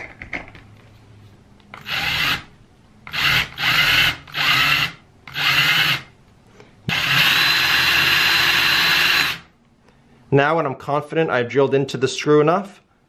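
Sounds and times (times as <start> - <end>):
cordless drill whining: 1.7 - 2.5, 3.1 - 6.1, 6.9 - 9.5.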